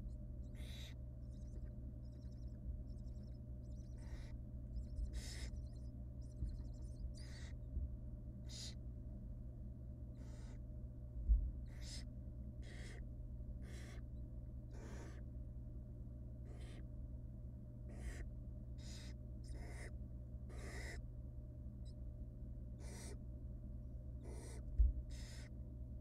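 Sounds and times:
steady low hum: 0.0s - 26.0s
owl nestlings hissing begging calls: 0.4s - 7.6s, 8.5s - 8.8s, 10.1s - 10.6s, 11.7s - 13.0s, 13.6s - 14.0s, 14.7s - 15.2s, 16.5s - 16.8s, 17.9s - 21.0s, 22.8s - 23.2s, 24.2s - 25.5s.

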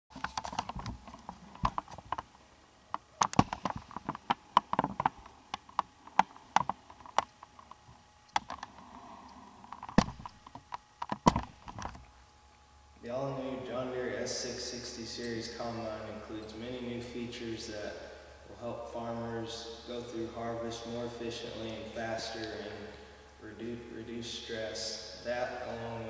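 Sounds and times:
low room noise: 0.1s - 26.0s
sharp clicks and knocks: 2.9s - 8.7s.

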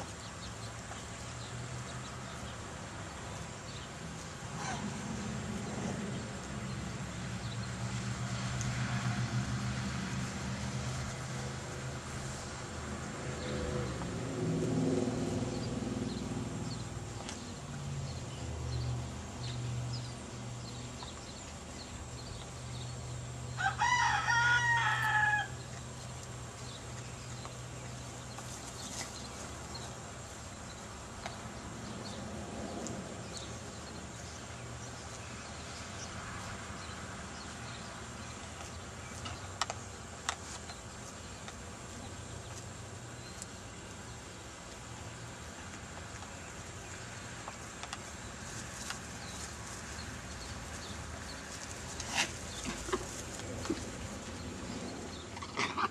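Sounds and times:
rooster crowing: 23.6s - 25.6s.

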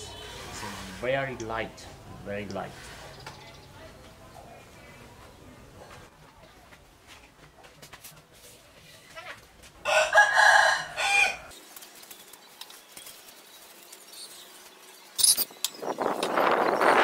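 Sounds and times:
rough scraping noise: 0.1s - 1.2s
rooster crowing: 9.8s - 11.5s.

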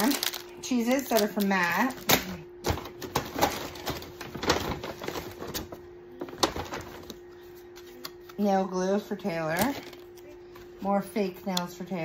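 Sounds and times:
paper bag rustling: 0.0s - 2.1s, 2.8s - 7.3s.

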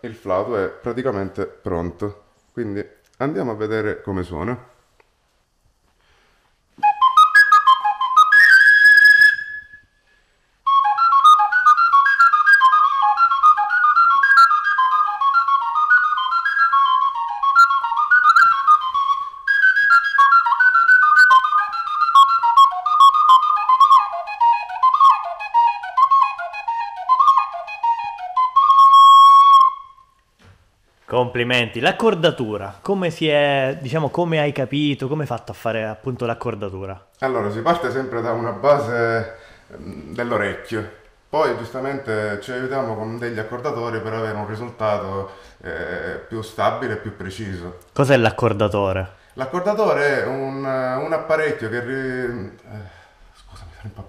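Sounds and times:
cane flute melody: 6.8s - 10.0s, 10.6s - 30.2s.

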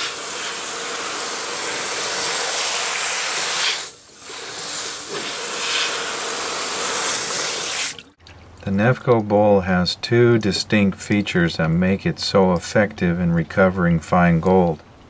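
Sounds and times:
hose spray nozzle hissing: 0.0s - 8.0s.

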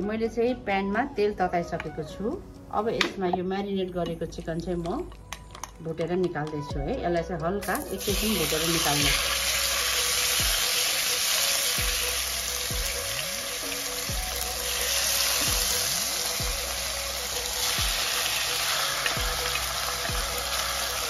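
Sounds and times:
background music: 0.0s - 21.0s
chicken frying in hot oil: 7.8s - 21.0s.

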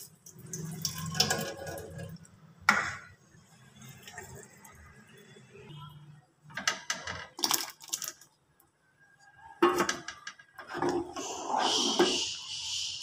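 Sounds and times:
ladle scraping steel pot: 9.7s - 12.4s.

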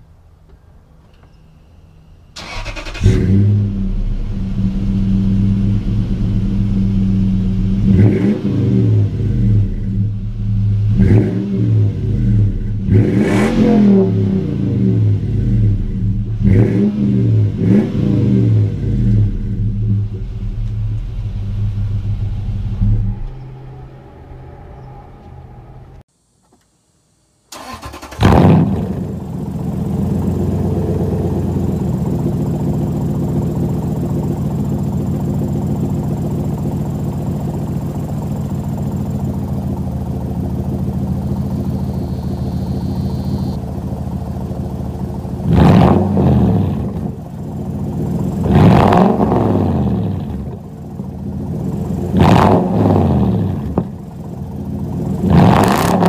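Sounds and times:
engine idling with throttle blips: 0.0s - 26.0s, 27.5s - 56.0s
engine starting with rev flare: 2.3s - 26.1s, 27.5s - 31.7s, 40.7s - 43.8s, 45.4s - 47.2s, 55.2s - 56.0s.

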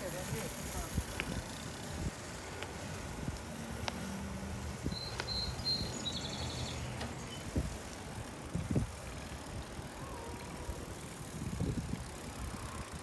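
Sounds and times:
bicycle tyres rumbling on asphalt: 0.0s - 13.0s
high-pitched chirping: 4.8s - 7.5s.

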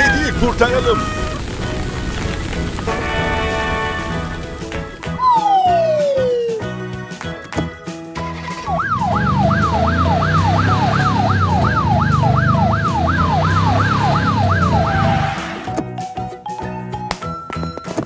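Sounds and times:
electronic siren yelping: 5.2s - 6.7s, 8.5s - 15.8s.

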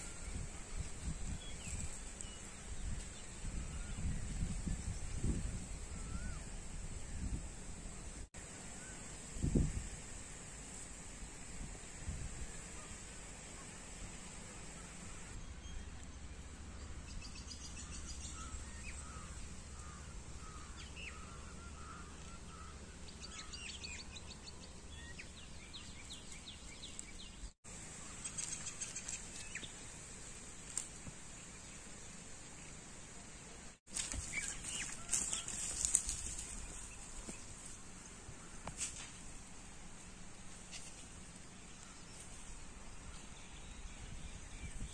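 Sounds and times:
steady high hiss: 0.0s - 15.5s, 16.1s - 44.9s
small birds chirping: 14.5s - 37.8s
footsteps through dry grass: 33.9s - 39.3s.

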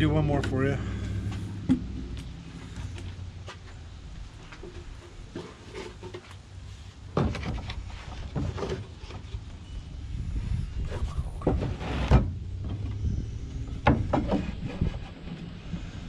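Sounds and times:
steady low rumble: 0.0s - 4.6s, 9.8s - 11.6s, 12.2s - 16.0s
wooden boards knocking and sliding: 7.1s - 9.4s, 11.0s - 13.0s, 13.6s - 15.8s.

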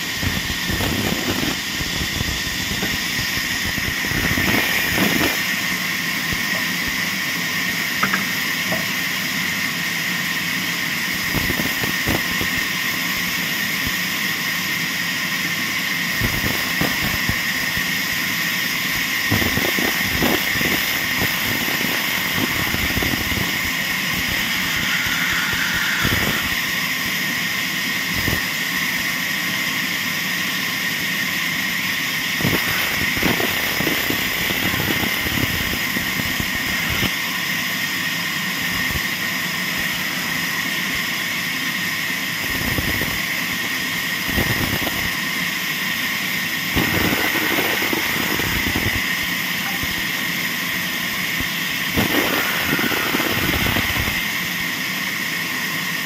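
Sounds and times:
band saw cutting wood: 19.7s - 26.8s.

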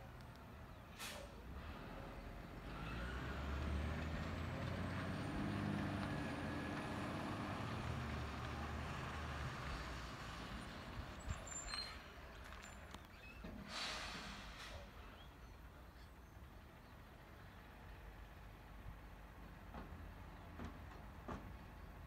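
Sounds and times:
diesel truck engine humming: 1.8s - 11.6s.

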